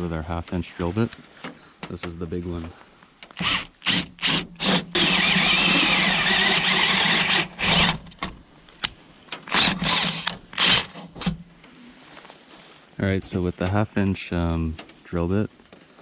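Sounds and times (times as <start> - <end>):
power drill drilling through metal: 3.4 - 8.0, 9.4 - 11.1.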